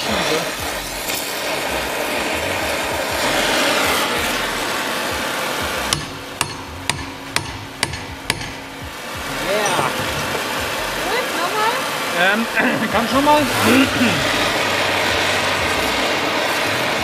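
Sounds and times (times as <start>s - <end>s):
gas torch hissing: 0.0s - 17.0s
hammer blows on metal: 5.1s - 9.0s.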